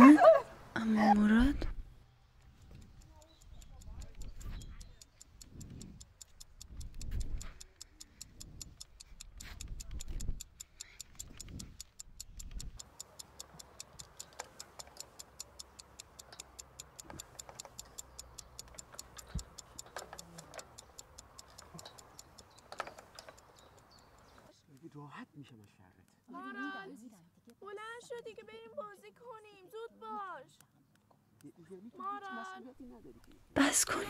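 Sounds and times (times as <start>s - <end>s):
clock ticking fast: 2.5s - 24.4s.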